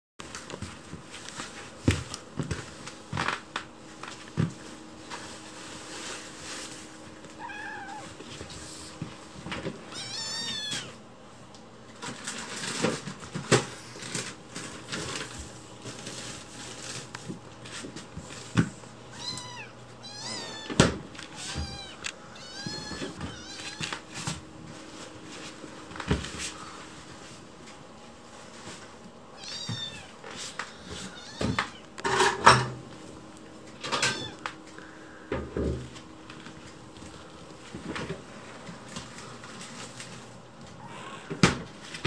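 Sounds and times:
kitten meowing: 0:07.4 - 0:08.2, 0:09.9 - 0:11.0, 0:19.1 - 0:23.9, 0:29.4 - 0:30.1, 0:31.0 - 0:31.9, 0:40.8 - 0:41.3.

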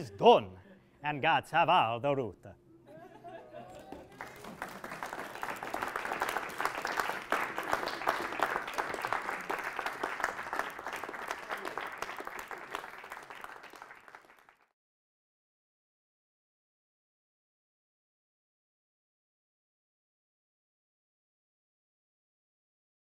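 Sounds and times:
audience applauding: 0:03.8 - 0:14.7.

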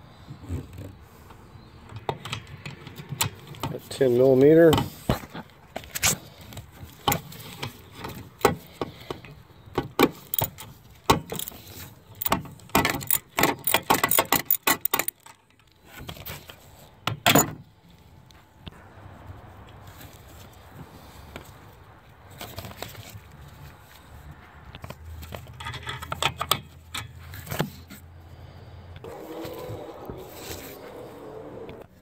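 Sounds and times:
hand ratchet clicking: 0:10.3 - 0:10.6, 0:11.3 - 0:11.6, 0:12.2 - 0:15.3.

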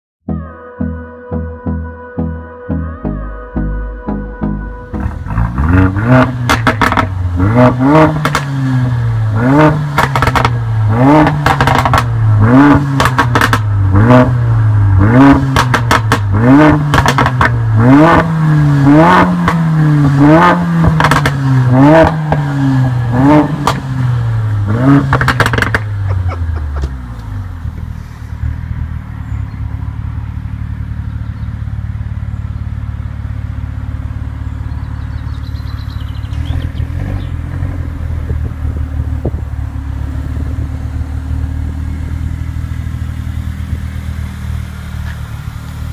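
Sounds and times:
car engine idling: 0:03.5 - 0:45.9
car engine revving: 0:04.1 - 0:45.9
exhaust pops and crackles: 0:06.3 - 0:08.6, 0:09.8 - 0:14.2, 0:15.2 - 0:18.3, 0:20.8 - 0:22.5, 0:23.4 - 0:23.9, 0:24.9 - 0:28.0, 0:34.8 - 0:40.7, 0:42.0 - 0:45.9.

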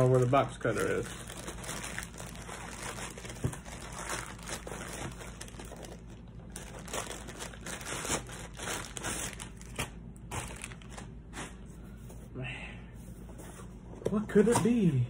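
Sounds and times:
packing wrap crinkling: 0:00.0 - 0:11.6.

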